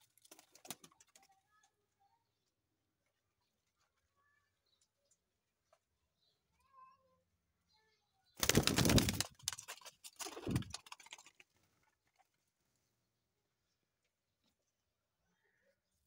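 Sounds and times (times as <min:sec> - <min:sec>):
pigeon wings flapping: 0:08.4 - 0:11.7.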